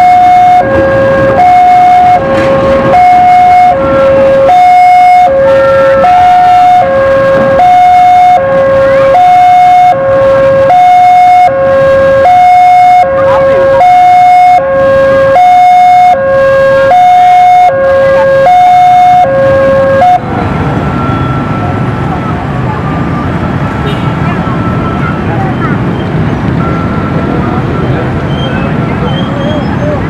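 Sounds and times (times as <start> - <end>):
level crossing two-tone warning alarm: 0.0 - 20.2, 26.5 - 28.1.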